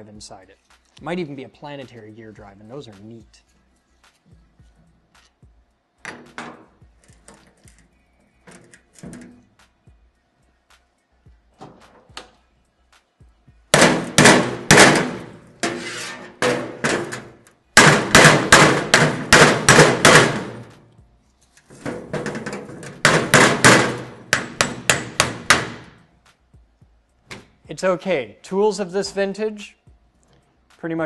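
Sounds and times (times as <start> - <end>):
hammer striking metal: 13.7 - 20.8, 22.1 - 26.0.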